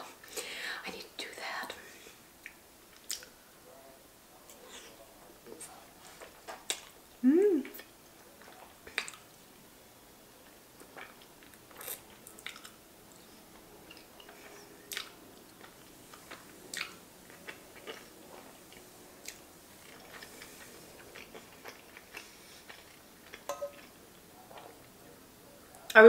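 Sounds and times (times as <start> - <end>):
mouth clicks and smacks: 2.4 - 3.3, 11.8 - 12.8
person chewing pasta: 2.4 - 3.4, 7.7 - 9.4, 10.4 - 24.9.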